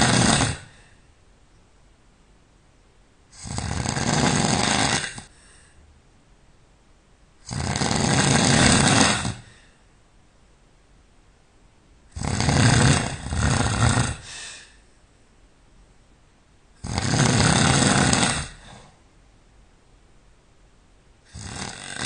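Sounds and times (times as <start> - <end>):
person snoring loudly: 0.0 - 0.9, 3.3 - 5.4, 7.4 - 9.7, 12.1 - 14.7, 16.8 - 19.0, 21.3 - 22.0.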